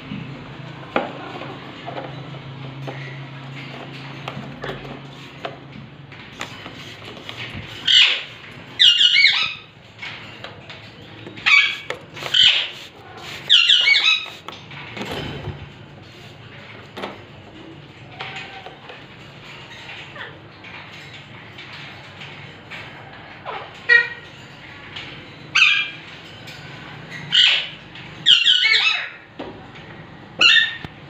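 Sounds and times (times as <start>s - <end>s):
parakeets squawking harshly: 6.8s - 9.8s, 11.3s - 14.6s, 23.4s - 24.4s, 25.5s - 26.0s, 27.1s - 29.3s, 30.4s - 30.9s.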